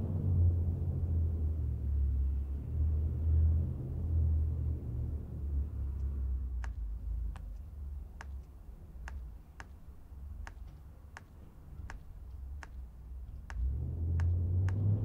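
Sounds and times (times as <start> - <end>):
sharp tick: 6.6 - 9.8, 10.4 - 15.0.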